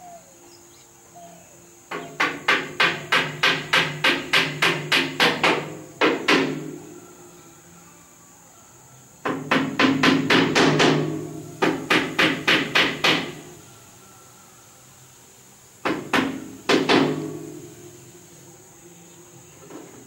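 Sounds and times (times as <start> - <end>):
sharp knocks: 1.9 - 6.8, 9.2 - 13.5, 15.8 - 17.8.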